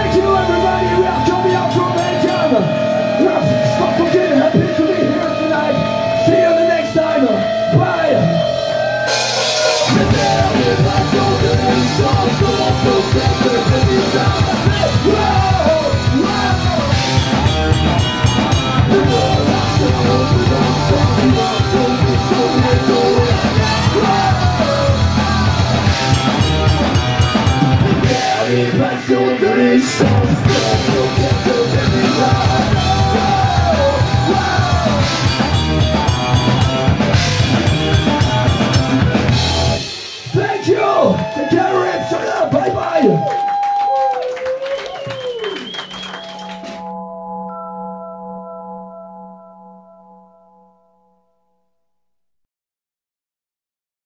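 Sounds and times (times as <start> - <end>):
bass guitar: 0.0 - 40.4
distorted electric guitars: 0.0 - 40.7
shouted vocals: 7.8 - 26.0, 28.0 - 35.3, 40.3 - 45.7
drum kit: 8.2 - 28.9, 29.9 - 41.4.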